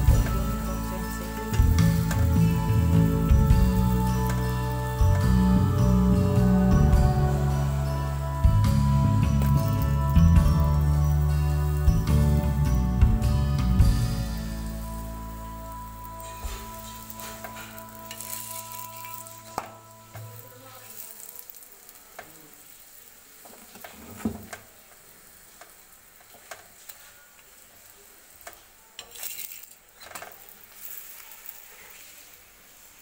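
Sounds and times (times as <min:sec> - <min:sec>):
flatbread sizzling in oil: 0:00.0 - 0:33.0
metal spatula scraping pan: 0:16.2 - 0:20.2.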